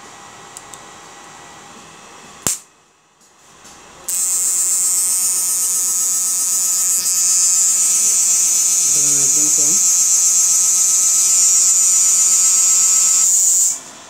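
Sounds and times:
high-pitched electrical buzz: 4.0 - 14.0.

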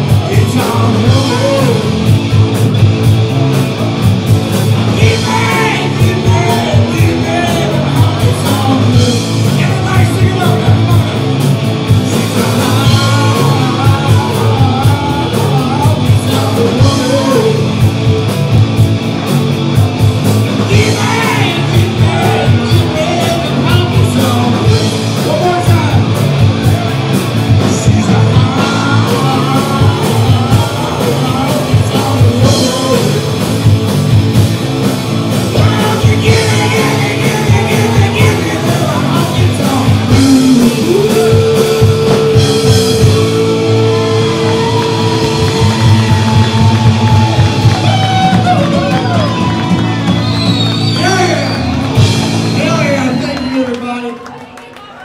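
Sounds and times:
person singing: 0.0 - 2.0, 4.9 - 11.2, 12.1 - 17.7, 20.7 - 26.1, 27.6 - 33.4, 35.5 - 46.7
electric guitar: 0.0 - 54.7
drums: 0.0 - 55.0.

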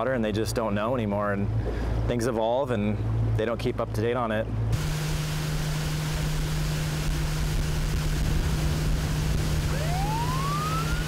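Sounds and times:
boat engine running: 0.0 - 11.0
wind and water rushing: 0.0 - 11.0
police siren wailing: 9.6 - 11.0.

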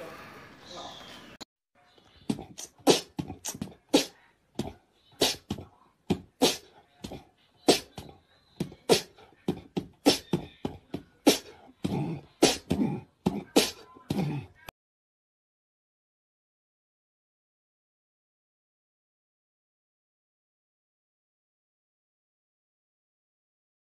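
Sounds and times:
cat hissing and spitting: 2.3 - 4.2, 5.2 - 5.6, 6.4 - 6.7.

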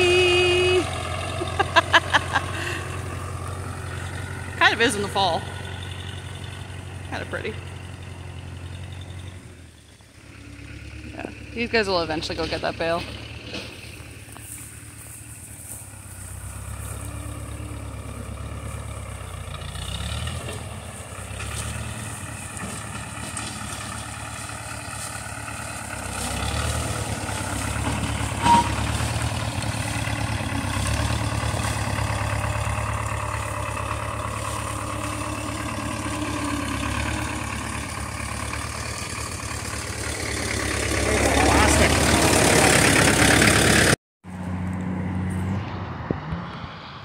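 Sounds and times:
old tractor engine running: 0.0 - 44.8.

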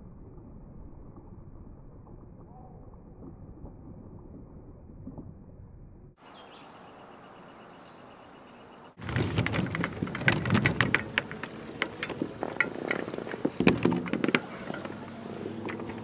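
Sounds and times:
wheelchair rolling over wooden boards: 9.0 - 16.0.

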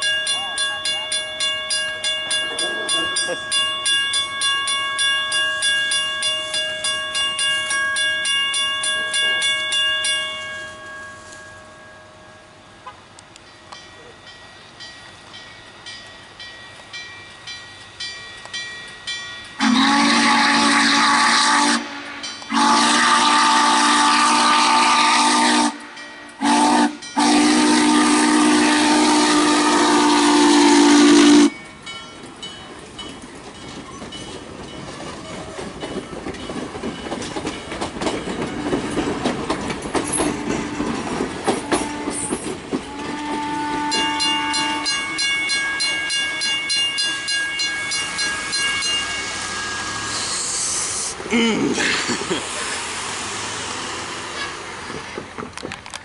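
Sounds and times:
train wheels clacking on rails: 0.0 - 10.4, 12.8 - 56.0
steam whistle blasts: 19.6 - 31.6, 41.6 - 45.1, 49.2 - 51.2.

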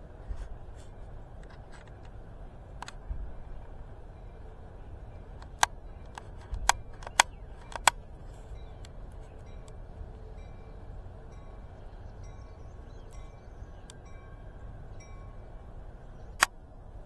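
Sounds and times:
low steady rumble: 0.0 - 17.0
sharp clicks: 5.4 - 8.1, 16.4 - 16.6.

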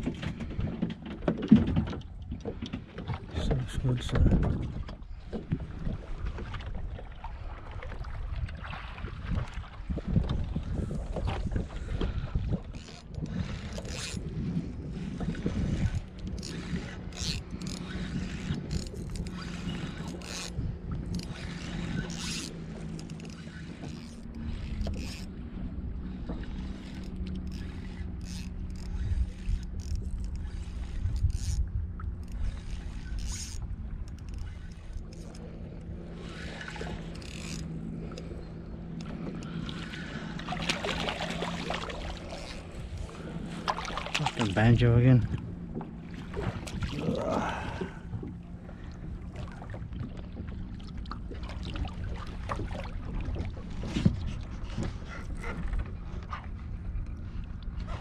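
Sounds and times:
wind buffeting microphone: 0.0 - 23.1
knocks and scrapes on boat: 0.0 - 58.0
steady low hum: 9.6 - 58.0.

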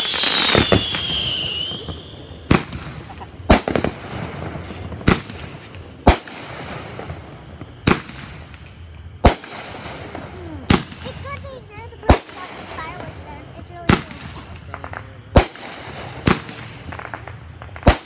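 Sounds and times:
firework falling whistle: 0.0 - 3.9, 16.4 - 18.0
firework shells exploding: 0.0 - 18.0.

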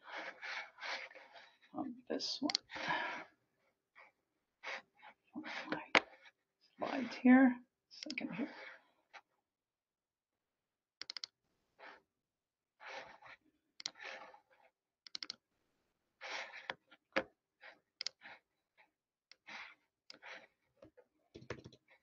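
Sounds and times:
computer mouse and keyboard clicks: 8.0 - 8.3, 11.0 - 11.4, 12.9 - 14.3, 15.1 - 15.4, 18.0 - 18.4, 19.3 - 20.5, 21.4 - 22.0.

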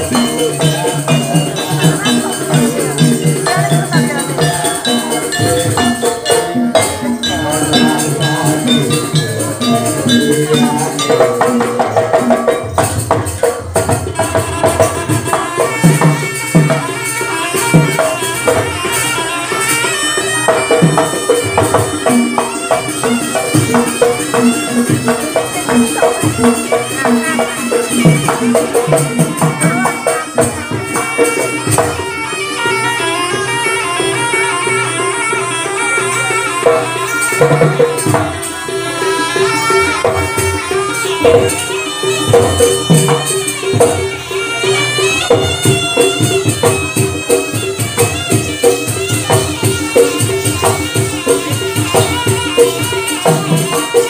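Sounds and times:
bronze metallophones: 0.0 - 54.0
gamelan music: 0.0 - 54.0
hand drum: 0.0 - 54.0
hanging gongs: 0.0 - 54.0.

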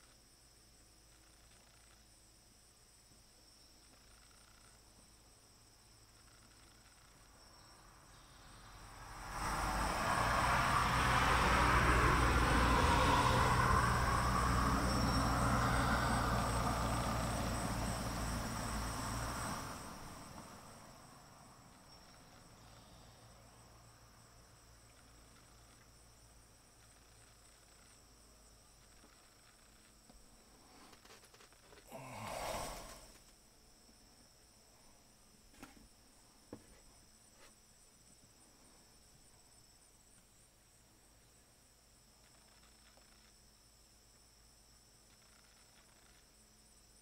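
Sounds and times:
high-pitched insect chorus: 0.0 - 47.0
vehicle passing: 8.6 - 21.7.

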